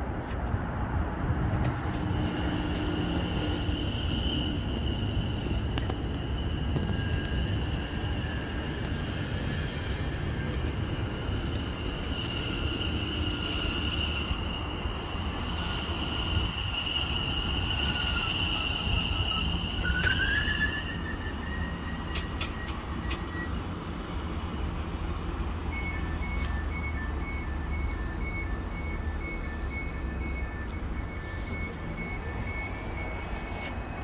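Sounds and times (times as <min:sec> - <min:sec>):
train low rumble: 0:00.0 - 0:34.0
electric train high whine: 0:01.4 - 0:24.6.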